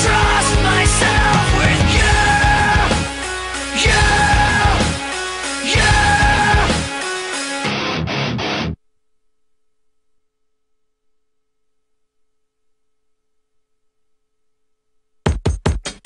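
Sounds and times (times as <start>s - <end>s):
electronic music with drum-machine beat: 0.0s - 7.6s, 15.3s - 16.0s.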